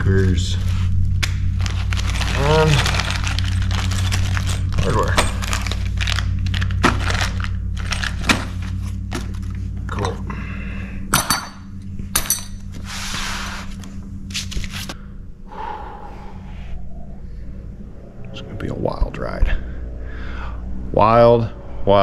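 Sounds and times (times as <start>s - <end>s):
low hum: 0.0s - 22.0s
plastic bags crinkling: 1.5s - 9.6s
metal hardware clinking: 11.1s - 12.7s.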